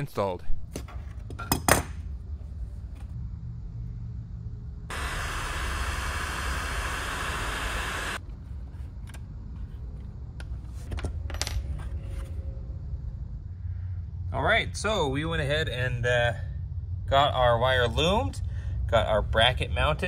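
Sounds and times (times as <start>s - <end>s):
heat gun hissing: 4.9s - 8.2s.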